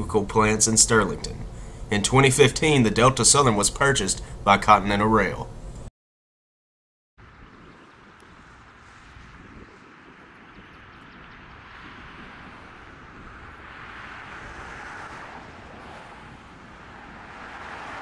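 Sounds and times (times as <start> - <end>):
distant vehicle rushing: 7.2 - 18.0.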